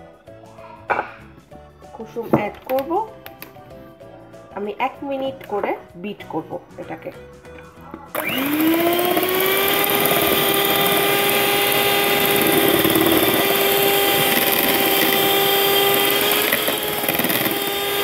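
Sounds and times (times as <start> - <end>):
electric mixer whine: 8.1 - 18.0.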